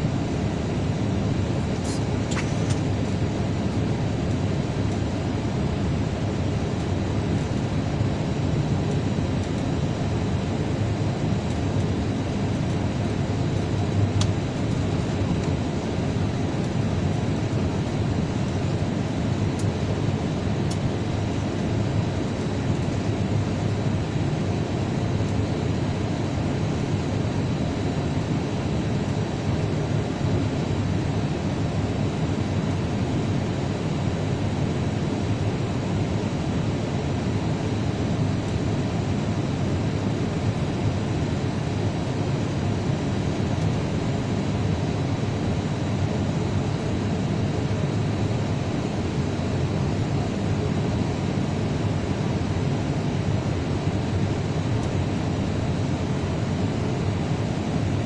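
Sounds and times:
airliner cabin noise: 0.0s - 58.0s.

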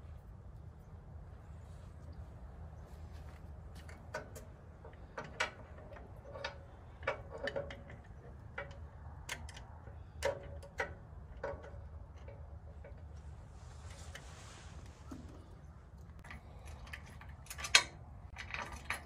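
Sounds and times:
bolts and tool clinking on metal: 3.7s - 19.0s.

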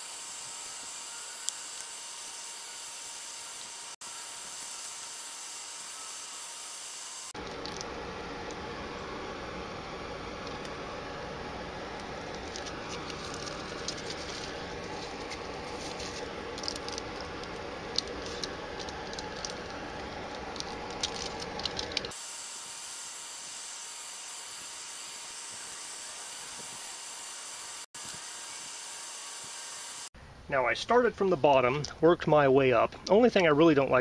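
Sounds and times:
tape crackling and clicking: 0.9s - 3.7s, 7.4s - 8.7s, 10.4s - 10.9s, 11.9s - 22.2s.

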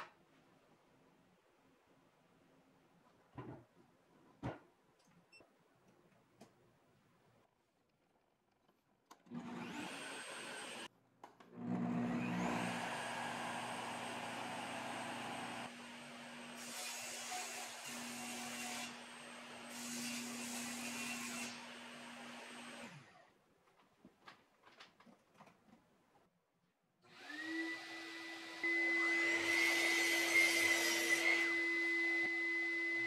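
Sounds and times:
table saw motor whining: 11.6s - 15.7s, 27.2s - 33.0s.

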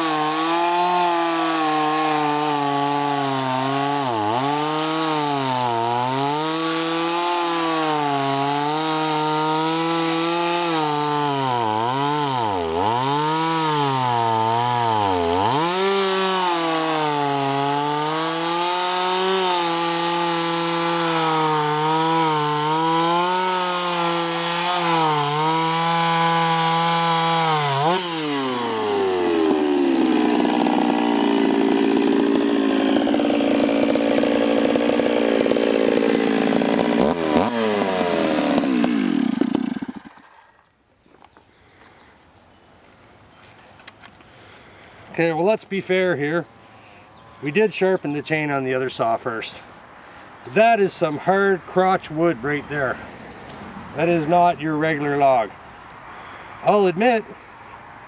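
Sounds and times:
chainsaw cutting wood: 0.0s - 40.8s.

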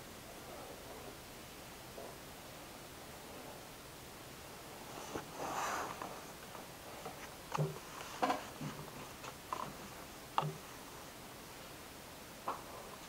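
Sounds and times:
quiet clicks and taps: 5.9s - 10.9s.

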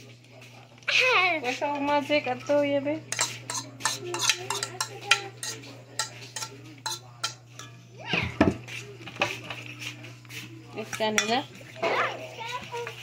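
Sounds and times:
spoon scraping metal bowl: 3.1s - 7.8s, 10.8s - 11.8s.

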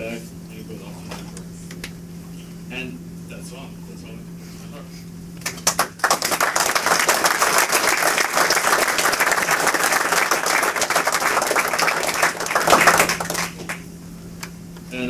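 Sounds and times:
audience applauding: 5.4s - 13.9s.

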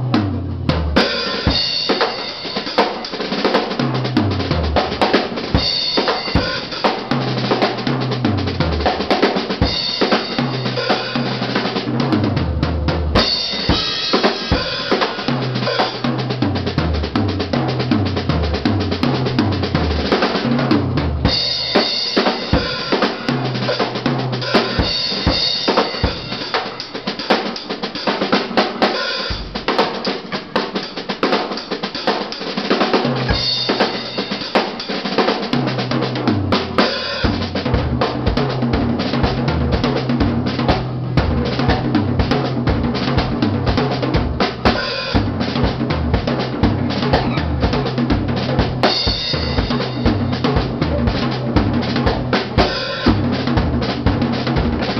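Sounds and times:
electric bass notes: 0.0s - 1.0s, 15.4s - 21.7s, 35.7s - 54.9s
drum kit beat: 0.0s - 54.9s.

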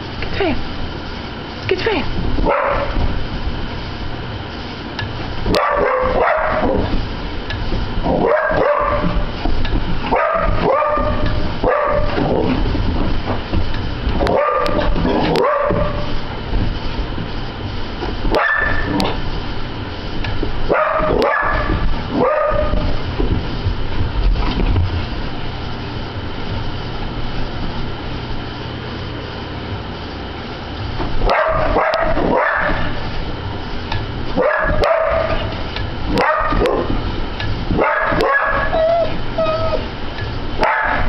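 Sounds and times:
steady low hum: 0.0s - 41.0s
dog barking and yipping: 2.5s - 3.0s, 5.5s - 6.8s, 8.2s - 9.2s, 10.1s - 12.2s, 14.3s - 16.1s, 18.3s - 18.9s, 20.7s - 22.9s, 31.3s - 32.9s, 34.4s - 35.5s, 36.2s - 36.9s, 37.8s - 39.9s, 40.6s - 41.0s.

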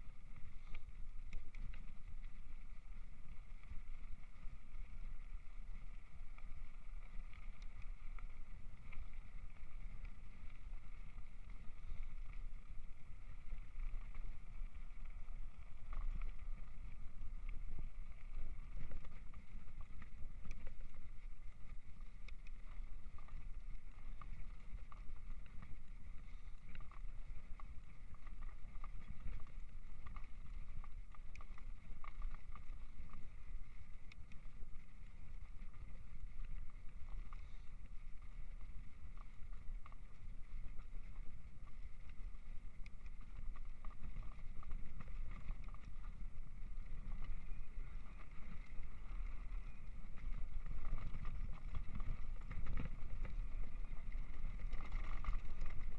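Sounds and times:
wind on microphone: 0.0s - 55.9s
bike rattling and clicking: 51.0s - 55.9s.

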